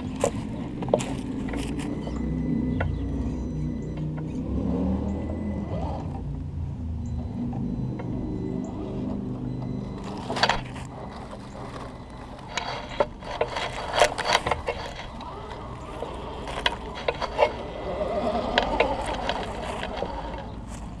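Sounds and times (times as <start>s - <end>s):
clicks and knocks on stones: 0.0s - 1.9s, 10.0s - 21.0s
leaves crunching: 0.0s - 2.0s, 10.0s - 21.0s
rc car motor whine: 0.0s - 6.3s, 7.1s - 21.0s.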